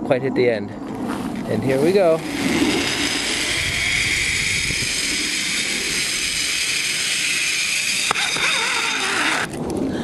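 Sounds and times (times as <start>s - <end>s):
pulley wheels whirring on cable: 1.8s - 9.6s.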